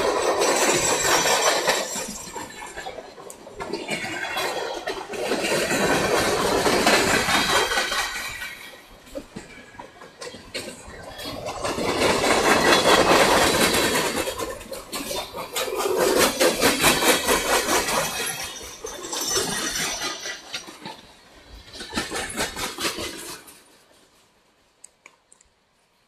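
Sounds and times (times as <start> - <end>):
freight train wheels clattering: 0.0 - 24.3
faint clicks: 24.8 - 25.6.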